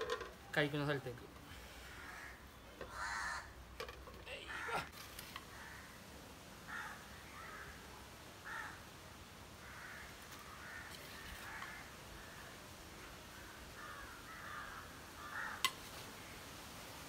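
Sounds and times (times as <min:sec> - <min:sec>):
crows cawing: 0:01.5 - 0:06.0, 0:06.7 - 0:08.9, 0:09.6 - 0:12.6, 0:13.3 - 0:15.8.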